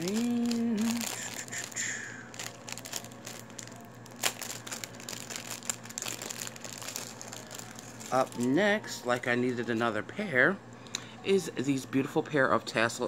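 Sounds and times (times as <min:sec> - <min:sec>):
packaging crinkling: 0:00.0 - 0:09.3.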